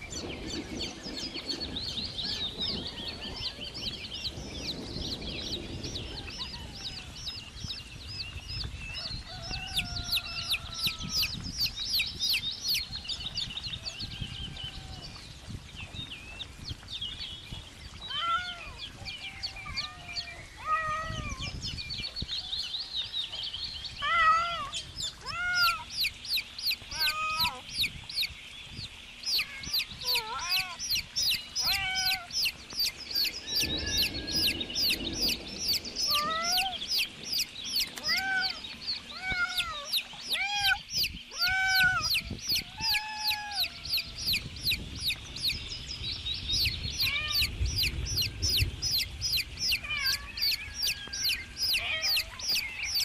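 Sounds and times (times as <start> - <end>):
lower pitched chick calls: 0.1 - 15.3, 18.0 - 53.0
chicks peeping: 8.5 - 13.2, 25.4 - 28.4, 29.3 - 45.6, 46.5 - 53.0.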